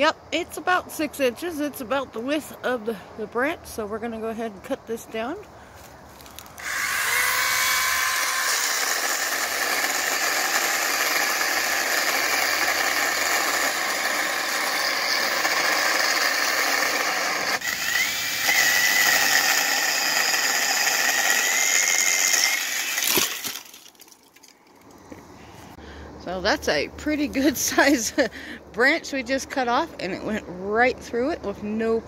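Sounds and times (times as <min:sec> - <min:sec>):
chainsaw cutting branch: 0:06.2 - 0:24.5.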